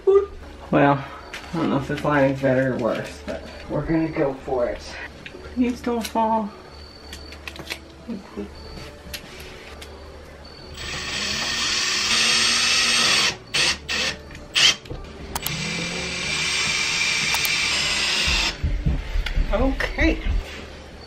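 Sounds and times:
cordless drill driving screws: 10.8 - 14.8, 15.4 - 18.6
sharp clicks: 13.6 - 15.6, 16.6 - 18.5.

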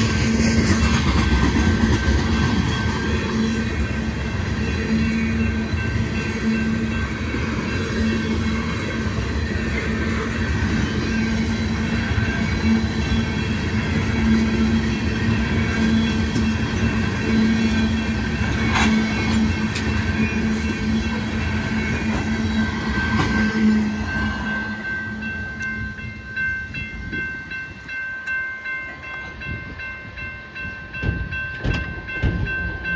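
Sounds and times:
crossing bell ringing: 0.0 - 32.9
freight train rolling past: 0.0 - 32.9
wheels clacking over rail joints: 15.0 - 24.2.

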